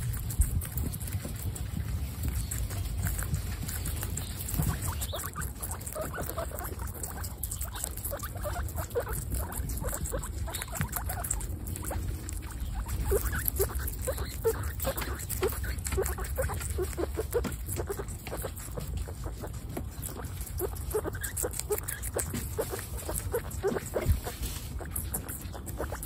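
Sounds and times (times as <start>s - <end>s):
guinea pigs crunching food: 0.0s - 26.0s
steady low rumble: 0.0s - 26.0s.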